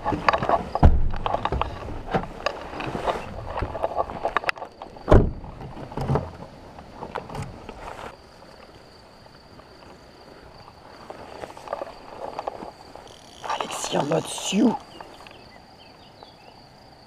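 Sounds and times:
car door slamming: 0:05.1 - 0:05.4.

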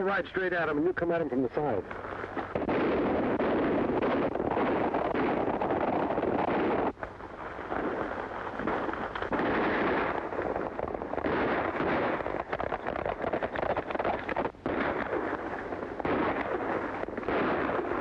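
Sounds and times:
horses galloping hoofbeats: 0:04.8 - 0:18.0.

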